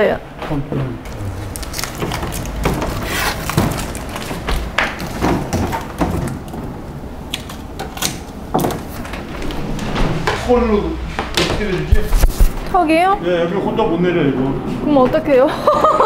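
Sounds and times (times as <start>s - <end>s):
packing tape rasping: 1.1s - 9.1s.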